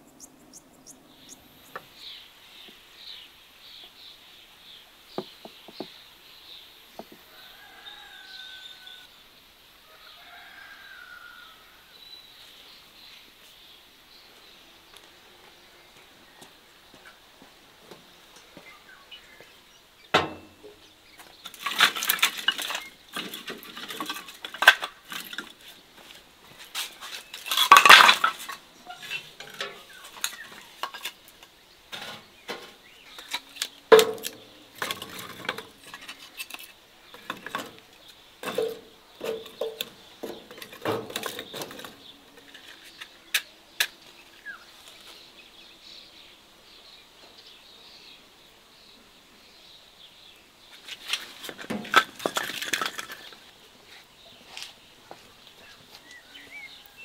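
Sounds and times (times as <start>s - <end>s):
dishes clattering: 27.5s - 31.1s.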